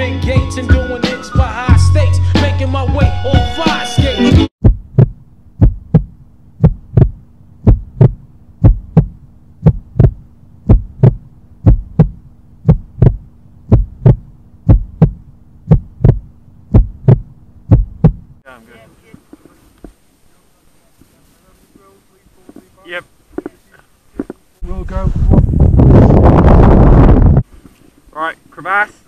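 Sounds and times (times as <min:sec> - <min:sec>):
heartbeat thumps: 0:04.4 - 0:18.4, 0:25.2 - 0:27.4
low steady hum: 0:04.6 - 0:27.3.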